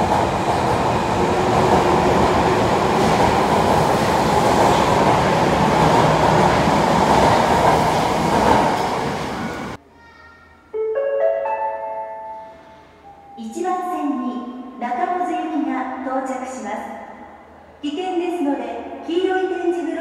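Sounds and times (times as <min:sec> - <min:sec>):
subway train running: 0:00.0 - 0:09.8.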